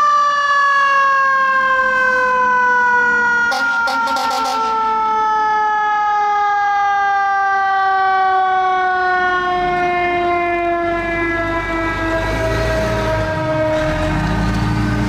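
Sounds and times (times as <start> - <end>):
mechanical siren winding down: 0.0 - 15.0
diesel truck engine rumbling: 10.8 - 15.0.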